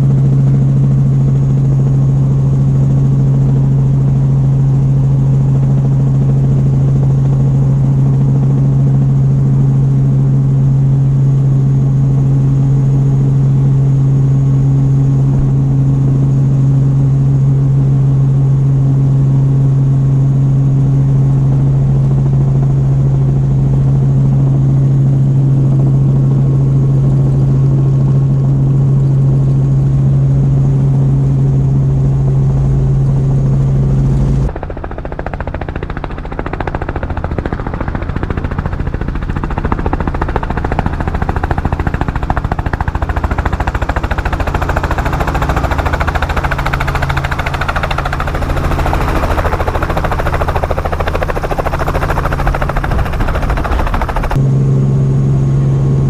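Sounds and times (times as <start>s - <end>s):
helicopter engine and rotor drone: 0.0s - 56.0s.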